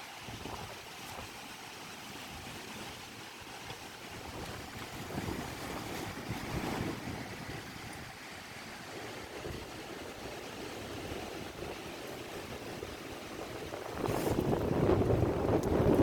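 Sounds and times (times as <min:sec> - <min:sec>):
wind gusting on microphone: 0:04.2 - 0:16.0.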